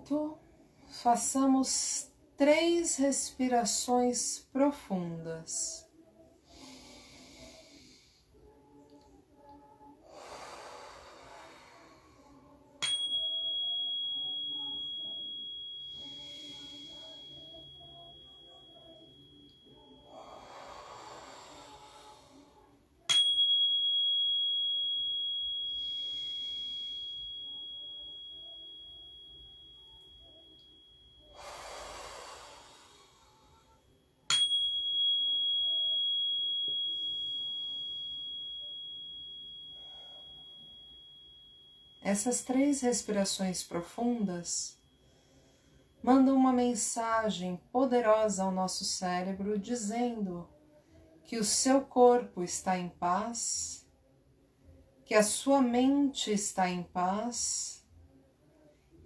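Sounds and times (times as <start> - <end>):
slow deep breathing: 6.4 - 8.3, 10.0 - 12.4, 20.0 - 22.7, 31.2 - 33.8, 45.0 - 46.0.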